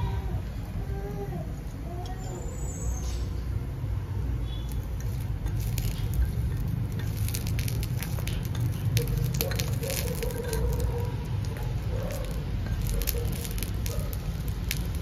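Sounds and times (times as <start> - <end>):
small wood fire crackling: 4.4 - 15.0
metal spoon scraping clay pot: 4.5 - 15.0.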